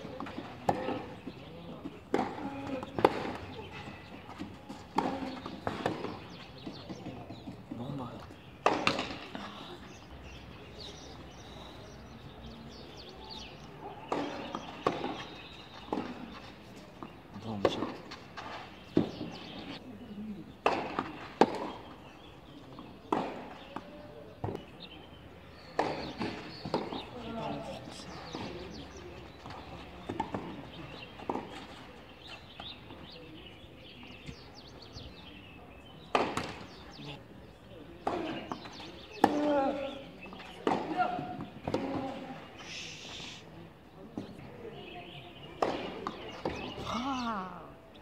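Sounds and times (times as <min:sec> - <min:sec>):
birds chirping: 0:00.0 - 0:48.0
tennis ball struck by rackets: 0:08.6 - 0:09.3, 0:36.1 - 0:36.9.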